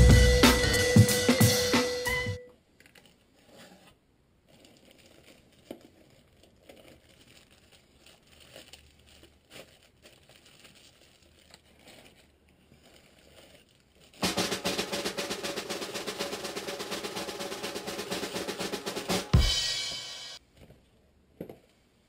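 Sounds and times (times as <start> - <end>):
cardboard and plastic bag rustling: 2.9 - 14.2.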